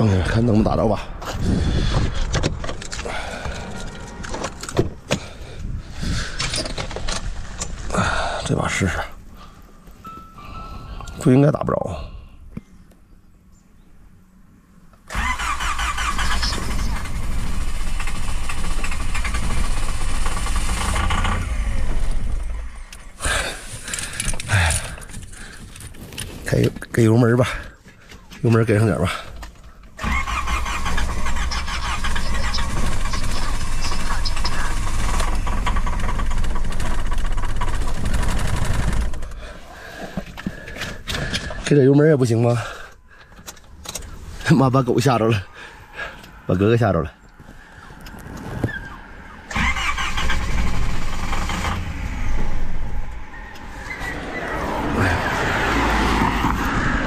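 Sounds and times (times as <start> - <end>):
car starter cranking engine: 15.0 - 26.2, 28.2 - 41.8, 47.6 - 56.3.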